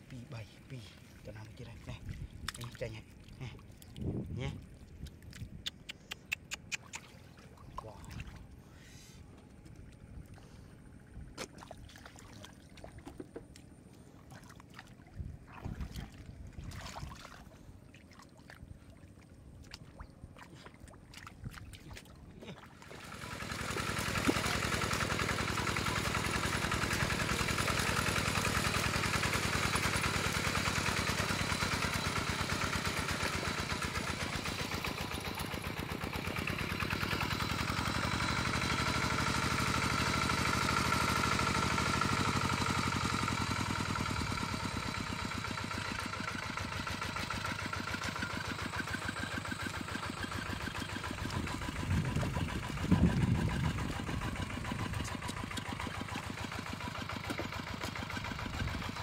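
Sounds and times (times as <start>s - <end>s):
diesel engine chugging: 23.1s - 59.0s.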